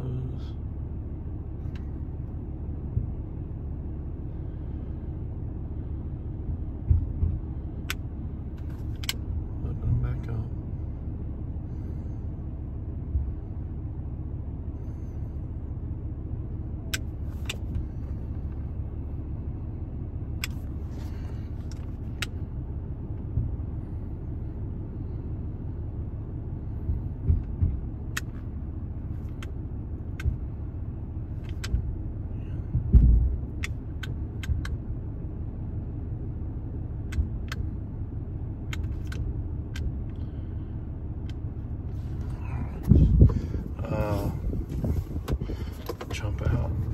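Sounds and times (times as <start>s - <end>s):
diesel engine idling: 0.0s - 46.9s
low thumps: 26.8s - 28.0s, 32.7s - 33.5s, 42.2s - 46.9s.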